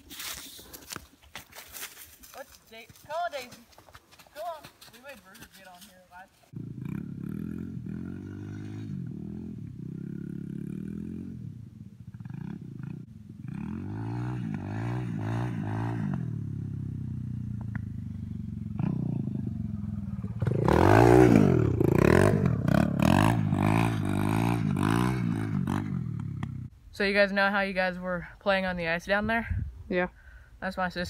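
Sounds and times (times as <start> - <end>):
dirt bike engine revving: 6.5 - 26.7.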